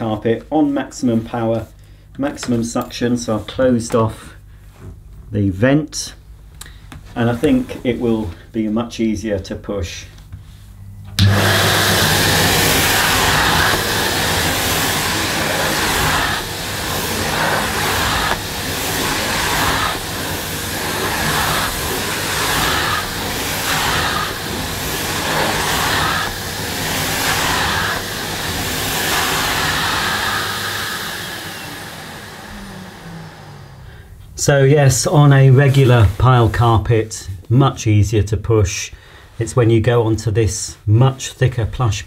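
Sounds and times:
vacuum cleaner motor running: 0:11.1 - 0:34.2
vacuum nozzle on carpet: 0:11.2 - 0:34.0.

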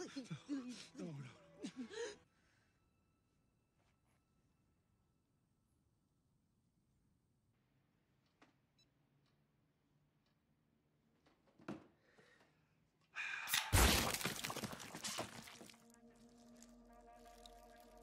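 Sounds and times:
gory explosion burst with spatter: 0:13.7 - 0:14.6
rising crackle: 0:13.7 - 0:18.0
low held music chord: 0:15.9 - 0:18.0.

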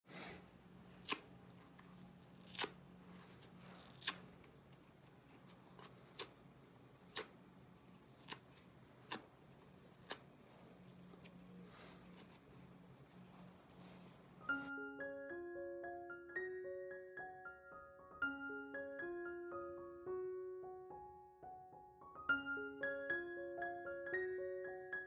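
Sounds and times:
foam sponge tearing and crackling: 0:02.2 - 0:02.8, 0:03.4 - 0:04.3.

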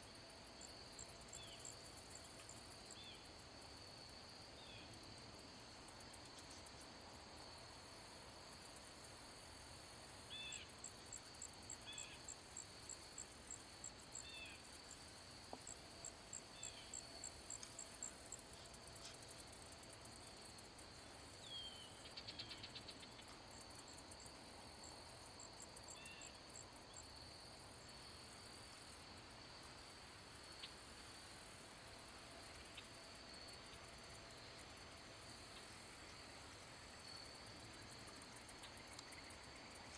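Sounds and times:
insect trill: 0:00.0 - 0:39.9.

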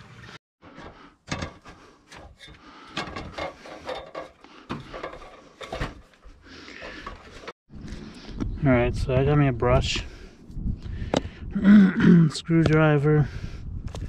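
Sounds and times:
knocks and scraping on metal ladder: 0:00.6 - 0:07.5.

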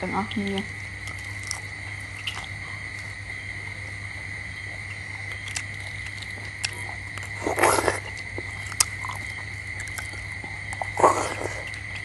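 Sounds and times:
person slurping: 0:06.6 - 0:09.2, 0:10.8 - 0:11.8.

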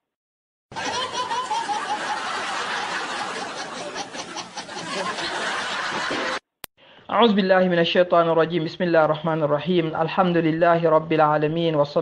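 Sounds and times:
group of people laughing: 0:00.7 - 0:06.4.

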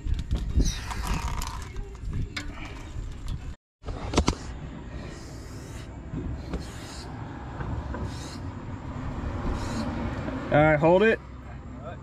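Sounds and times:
short hissing: 0:05.0 - 0:07.2, 0:08.0 - 0:08.5.

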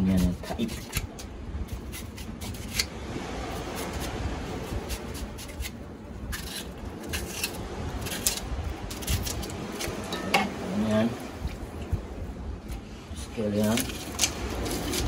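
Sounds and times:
low rumble: 0:02.9 - 0:15.0
knife slicing onion: 0:03.6 - 0:10.0.

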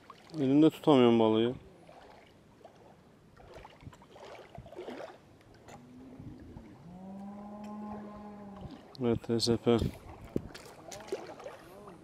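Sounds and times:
water splashing and gurgling: 0:00.0 - 0:12.0
cow mooing: 0:05.7 - 0:08.8.

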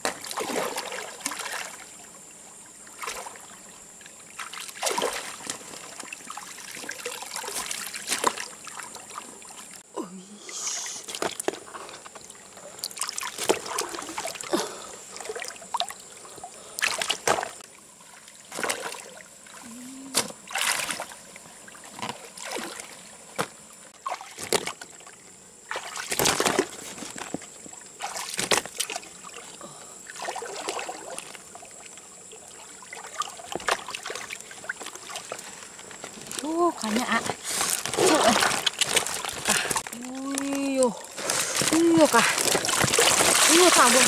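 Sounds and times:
water splashing and sloshing: 0:00.0 - 0:09.9, 0:10.7 - 0:44.0
water dripping onto leaves: 0:35.4 - 0:44.0.

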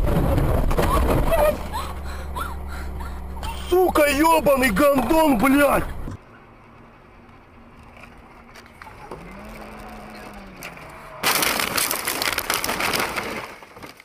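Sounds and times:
car crashing into snow: 0:00.0 - 0:01.7, 0:11.2 - 0:14.0
car road noise: 0:00.0 - 0:11.2.

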